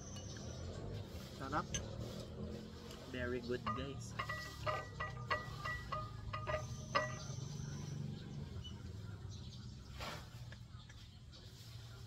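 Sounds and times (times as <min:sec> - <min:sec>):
metal utensil clinking on dish: 0:03.5 - 0:07.7.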